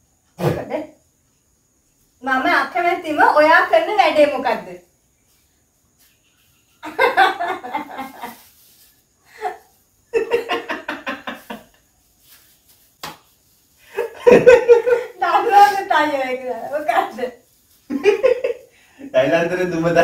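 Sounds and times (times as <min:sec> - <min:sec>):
woman laughing: 0:06.9 - 0:08.4, 0:14.0 - 0:15.8.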